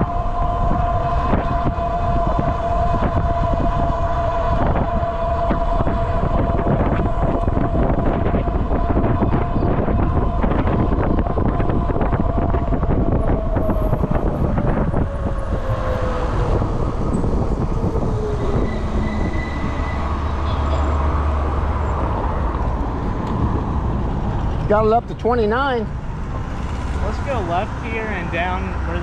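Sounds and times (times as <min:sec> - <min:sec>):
wind rushing over microphone: 0:00.0 - 0:29.0.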